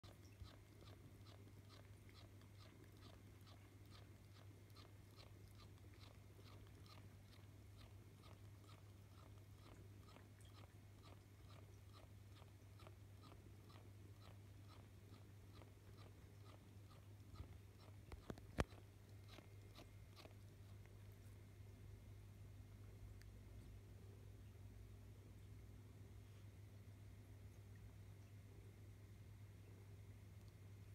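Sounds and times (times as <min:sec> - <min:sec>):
cat chewing and licking: 0:00.0 - 0:24.2
steady low hum: 0:00.0 - 0:30.9.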